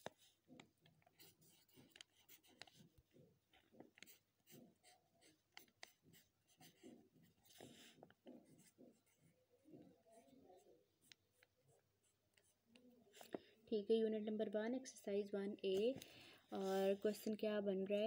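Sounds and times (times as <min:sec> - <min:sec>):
pen writing on paper: 0:00.0 - 0:13.3.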